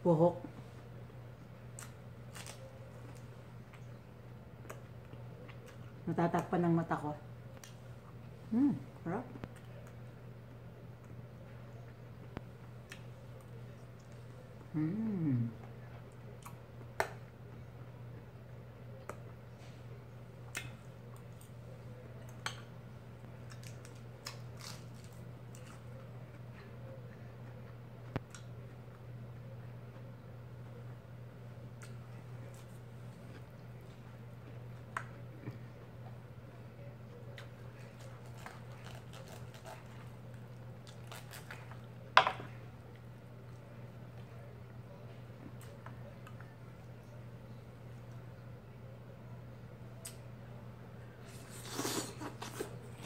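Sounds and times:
steady low hum: 0.0 - 53.0
chewing and mouth sounds: 4.6 - 6.0, 37.2 - 42.0
chewing close to microphone: 23.2 - 30.2, 36.9 - 42.0
hands tearing roasted chicken: 23.4 - 25.8, 37.3 - 42.0.

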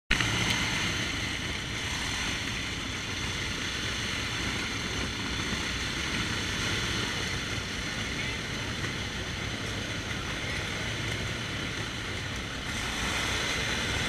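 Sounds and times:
motorcycle engines idling: 0.1 - 14.0.

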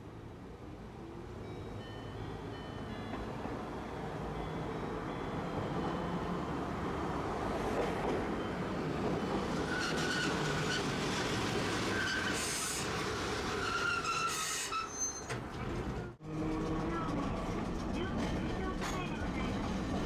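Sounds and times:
tram running on rails: 0.0 - 20.0
wheels squealing: 9.2 - 18.4.

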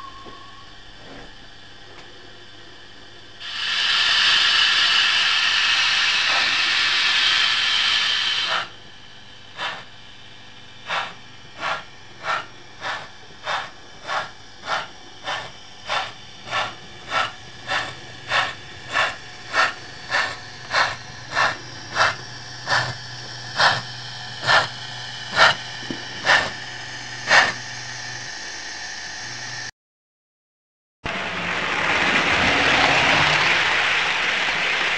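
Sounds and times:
low hum: 0.0 - 3.4
model steam locomotive chuffing: 3.4 - 29.7.

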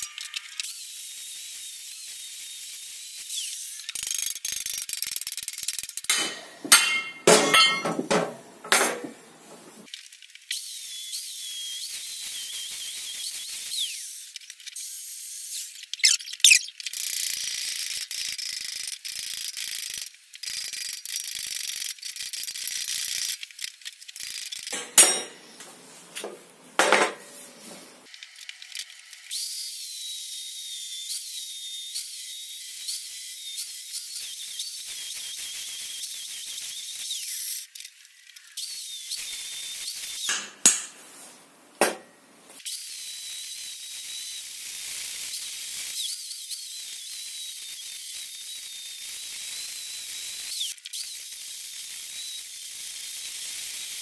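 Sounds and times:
angle grinder on metal: 5.8 - 7.8
sharp metal knocks: 6.1 - 9.2, 24.8 - 25.4, 40.3 - 41.0, 41.8 - 42.1.

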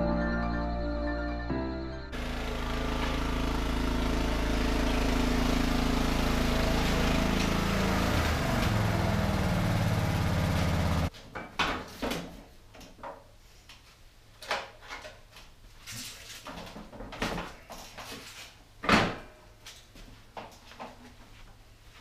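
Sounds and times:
lawn tractor engine running: 2.2 - 11.1.

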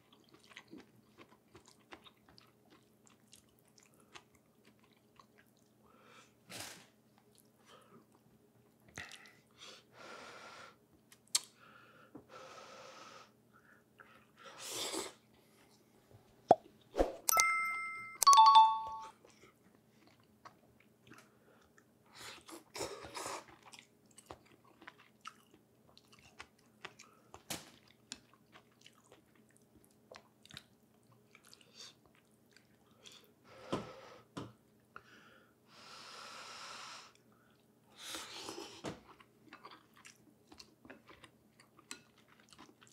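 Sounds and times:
person chewing: 0.0 - 5.8, 19.3 - 33.3, 38.3 - 42.9.

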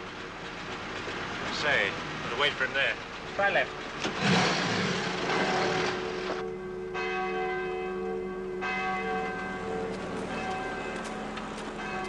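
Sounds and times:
church bell ringing: 5.9 - 12.0.

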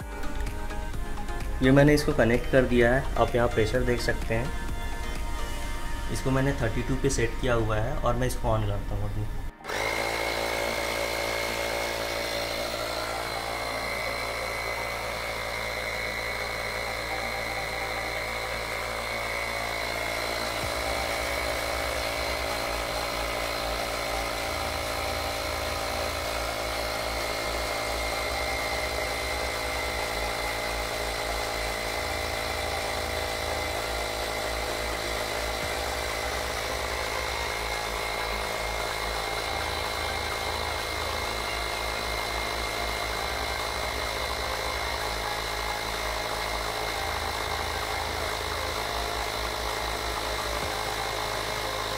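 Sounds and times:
tyre inflator compressor running: 0.0 - 51.9.

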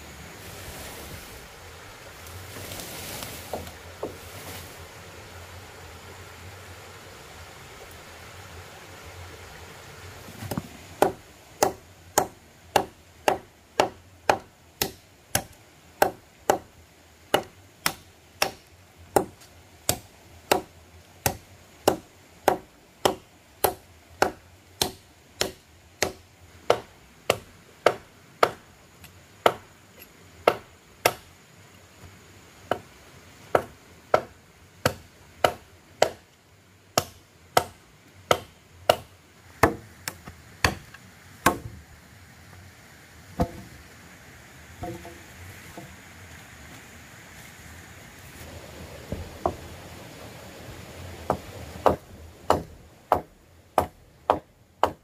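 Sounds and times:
blade chopping wood: 10.3 - 16.7, 17.3 - 28.6, 29.4 - 29.7, 30.4 - 31.3, 33.5 - 36.2, 37.0 - 41.7, 43.4 - 43.7, 44.8 - 45.2.

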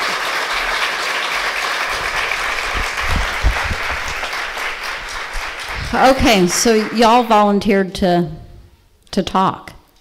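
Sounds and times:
audience applauding: 0.0 - 7.4
low thumps: 2.0 - 7.2.

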